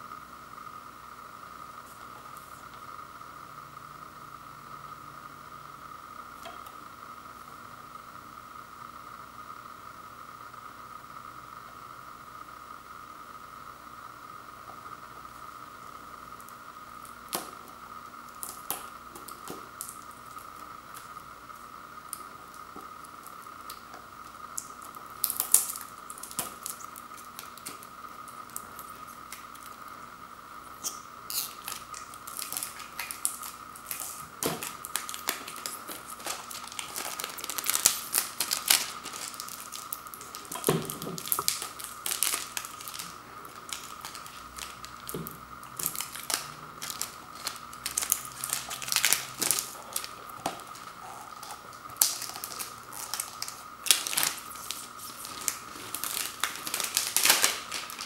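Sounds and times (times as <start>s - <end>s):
faint steady hum: 0.0s - 58.0s
shrink-wrap crinkling and crackling: 16.4s - 30.1s, 30.7s - 58.0s.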